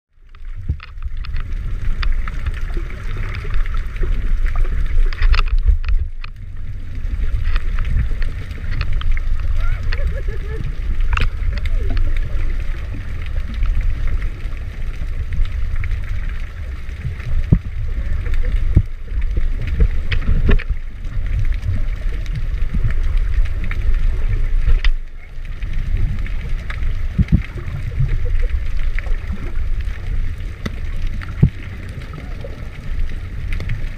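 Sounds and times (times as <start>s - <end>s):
sharp clicks and crackles: 0.1s - 33.9s
underwater churning water rumble: 0.1s - 33.9s
bubbles hissing: 0.6s - 33.9s.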